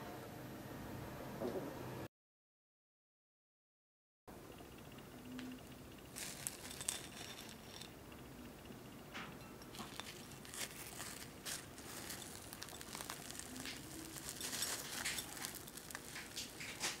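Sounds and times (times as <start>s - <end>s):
sugar coating crackling: 6.0s - 8.0s, 9.6s - 17.0s
dough tearing: 9.8s - 17.0s.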